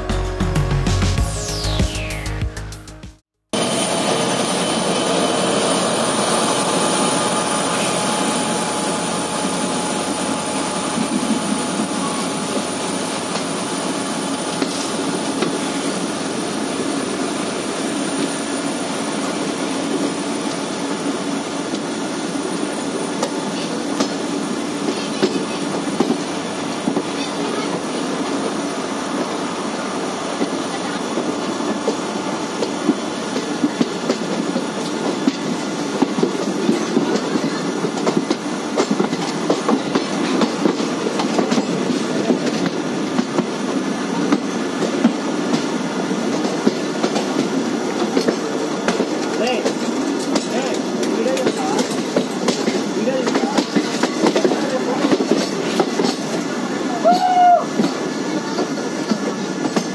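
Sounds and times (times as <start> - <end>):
train wheels rumbling on rail: 3.6 - 59.9
clickety-clack over rail joints: 23.1 - 28.4, 32.6 - 59.9.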